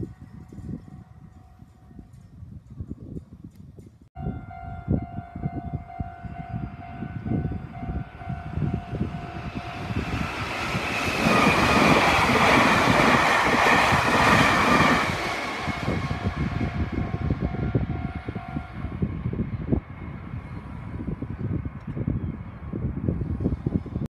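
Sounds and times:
crossing warning bell ringing: 4.2s - 19.0s
train passing: 4.2s - 21.6s.

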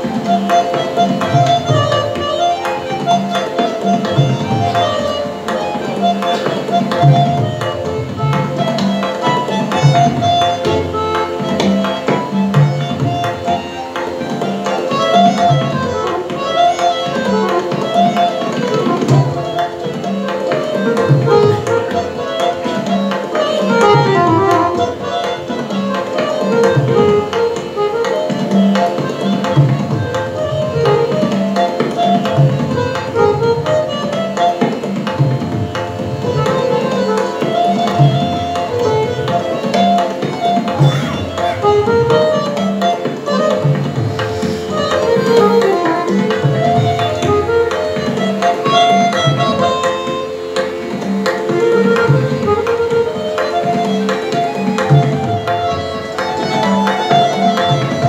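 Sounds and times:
harmonium melody: 0.0s - 58.0s
tabla drumming: 0.0s - 58.0s.

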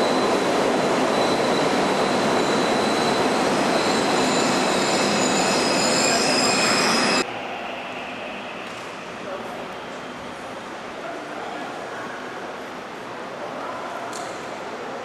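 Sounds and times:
high brake squealing: 0.0s - 7.2s.

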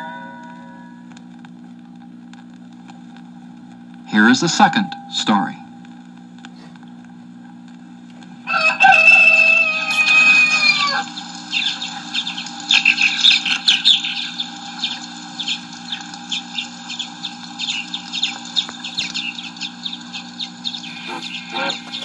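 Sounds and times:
steady low hum: 0.0s - 22.0s
small birds chirping: 9.1s - 22.0s.

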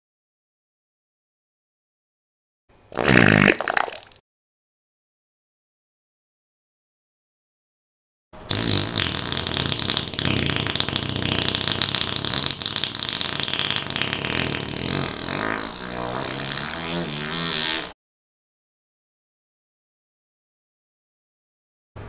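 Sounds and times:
long rattling fart: 2.9s - 4.1s, 8.5s - 18.0s.

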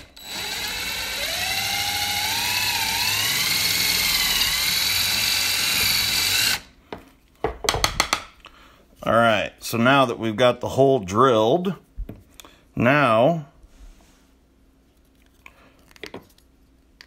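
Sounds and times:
power drill whining: 0.0s - 6.7s.

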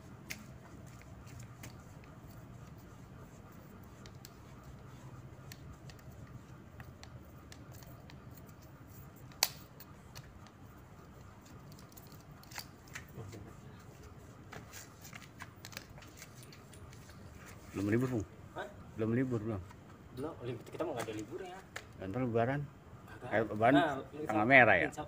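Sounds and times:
paintbrush on fence: 0.0s - 18.2s.

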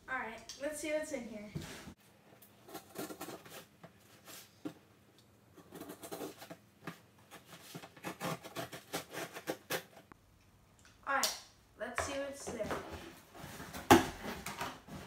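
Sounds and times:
tool scratching packing tape: 7.3s - 10.0s.

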